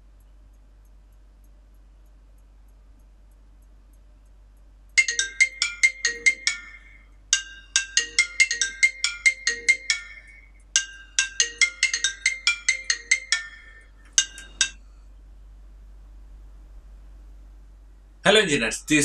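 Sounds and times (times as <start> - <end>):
phone ringtone melody: 5.0 - 14.7.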